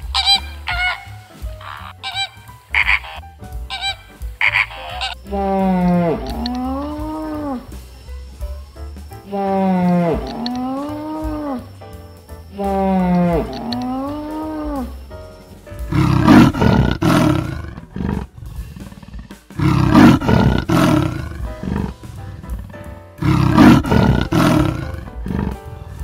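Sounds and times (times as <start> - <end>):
background music: 0.0 - 26.0
big cat roaring: 5.3 - 7.7, 9.4 - 11.7, 15.9 - 26.0.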